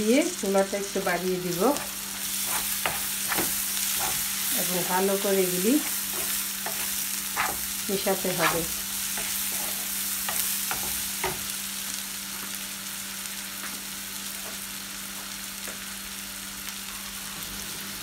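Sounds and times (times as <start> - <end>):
food sizzling in a frying pan: 0.0 - 18.0
wooden spoon scraping a pan: 1.5 - 11.4.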